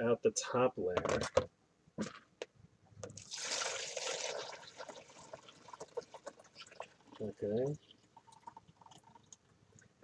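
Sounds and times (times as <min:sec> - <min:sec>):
liquid pouring and dripping: 0:03.2 - 0:10.0.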